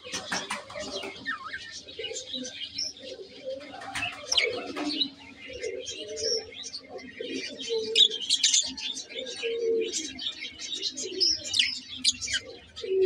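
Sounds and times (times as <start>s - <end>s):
budgerigars chirping: 0.1s - 6.8s, 11.0s - 12.6s.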